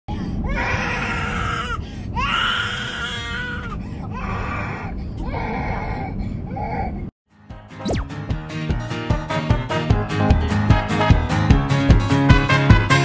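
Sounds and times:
toddler crying and wailing: 0.4s - 7.1s.

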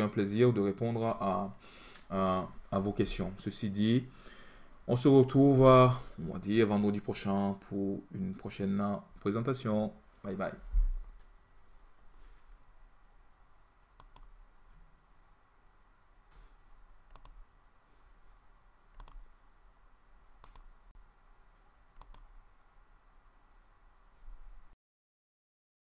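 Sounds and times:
computer mouse clicks: 13.8s - 14.3s, 17.1s - 17.4s, 18.9s - 19.3s, 20.4s - 20.7s, 22.0s - 22.3s.

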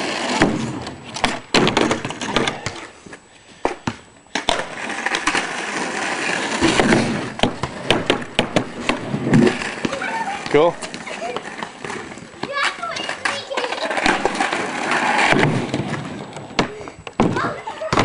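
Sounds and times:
skateboard wheels rolling on pavement: 0.0s - 18.0s
skateboard clacking on ground: 3.7s - 18.0s.

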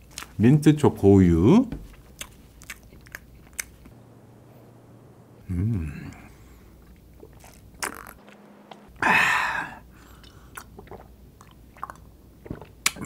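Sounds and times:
loud gulp: 5.4s - 8.2s, 8.9s - 11.1s
wet swallowing clicks: 6.1s - 8.9s, 10.2s - 13.0s.

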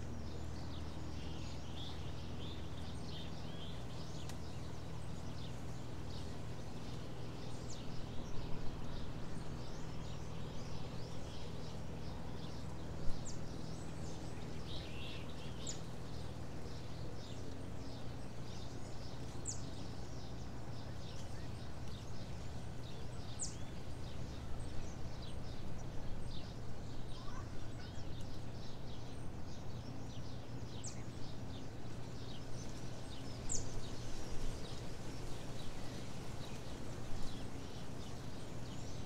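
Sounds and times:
low hum: 0.0s - 39.0s
small birds chirping: 0.0s - 39.0s.

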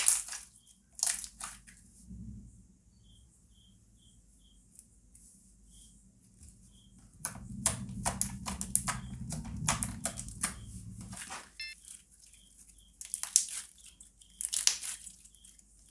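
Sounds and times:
hands rumbling on table: 7.0s - 11.4s.

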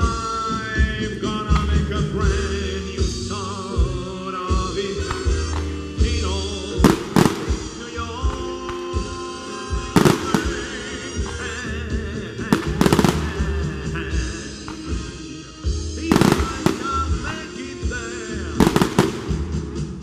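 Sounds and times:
person singing live: 0.0s - 19.5s
fireworks bursting with bangs: 4.6s - 20.0s
fireworks crackling: 5.0s - 20.0s.

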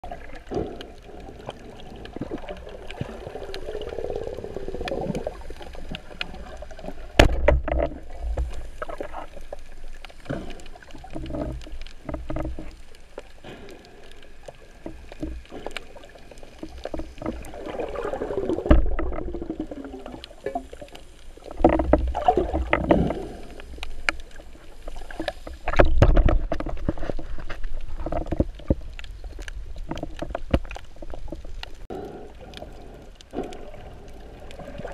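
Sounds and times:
water moving and bubbling: 0.0s - 34.9s
dull knocks and thumps: 7.2s - 8.5s.

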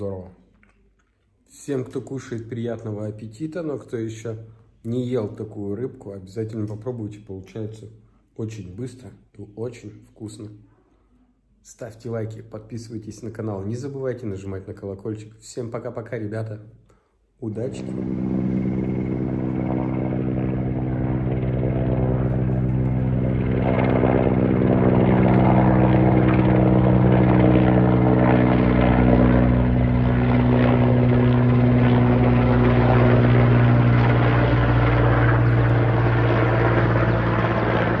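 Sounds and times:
helicopter engine whine: 17.6s - 38.0s
helicopter rotor beat: 17.6s - 38.0s.

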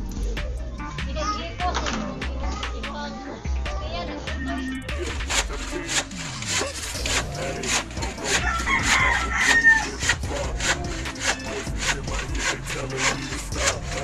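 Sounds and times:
handsaw cutting wood: 4.9s - 14.0s
rooster crowing: 8.2s - 10.1s.

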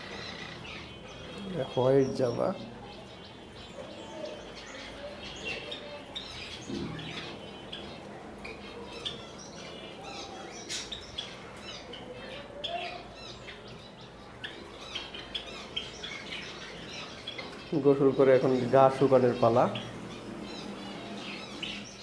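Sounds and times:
sparrows chirping: 0.0s - 22.0s.

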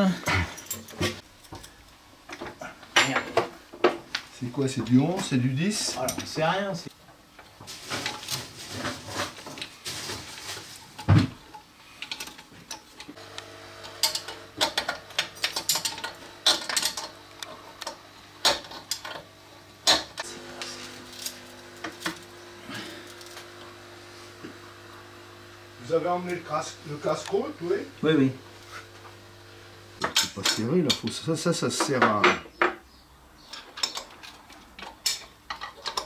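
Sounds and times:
hand tools clinking on metal: 14.0s - 17.2s.

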